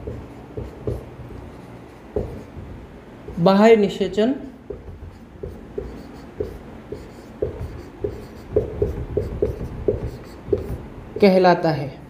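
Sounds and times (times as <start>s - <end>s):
marker squeaking on whiteboard: 0.0s - 2.7s, 4.7s - 11.3s.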